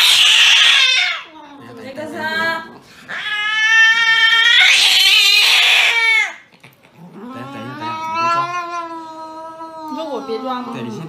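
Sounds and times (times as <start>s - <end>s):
cat growling yowl: 0.0s - 1.3s, 3.1s - 11.0s
cat yowling angrily: 0.0s - 1.3s, 3.1s - 6.4s, 7.2s - 11.0s.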